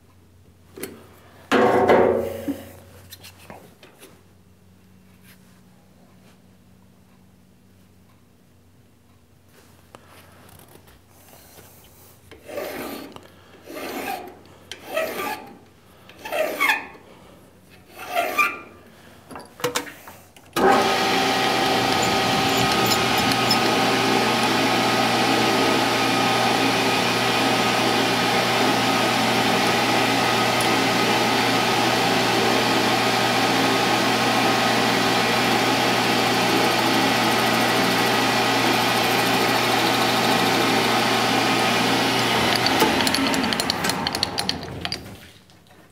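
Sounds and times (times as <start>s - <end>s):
file rasping on steel: 12.3s - 15.6s, 16.2s - 16.9s, 17.9s - 18.6s, 21.4s - 24.1s
metal lathe running: 20.6s - 45.1s.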